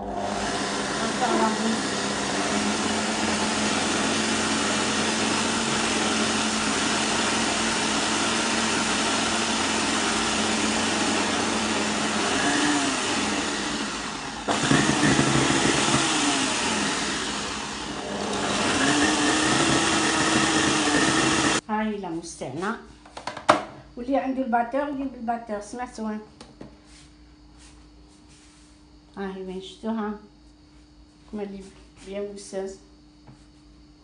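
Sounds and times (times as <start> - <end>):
stand mixer whirring: 0.0 - 21.6.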